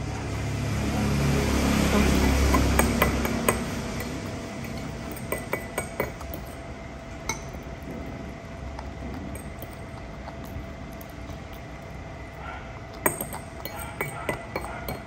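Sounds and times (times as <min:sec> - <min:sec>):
steady low hum: 0:00.0 - 0:15.0
fork clinking on ceramic bowl: 0:02.0 - 0:06.6, 0:07.3 - 0:07.6, 0:09.3 - 0:10.0, 0:12.9 - 0:15.0.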